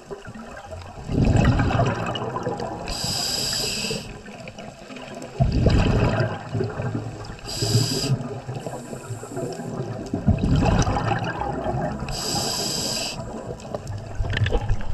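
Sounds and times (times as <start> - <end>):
exhaled bubbles underwater: 0.0 - 14.9
regulator inhalation hiss: 2.9 - 4.2, 7.5 - 9.8, 12.1 - 13.4.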